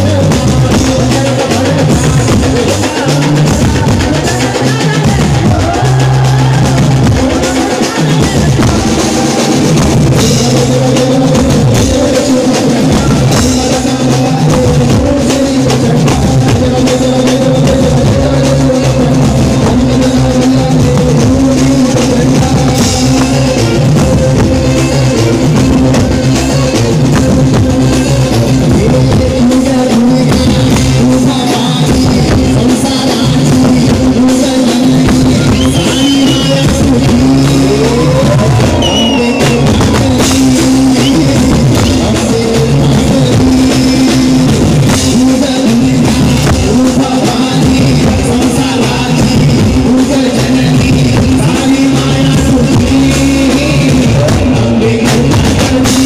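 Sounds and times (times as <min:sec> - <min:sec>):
amplified dance music with drums: 0:00.0 - 0:56.0.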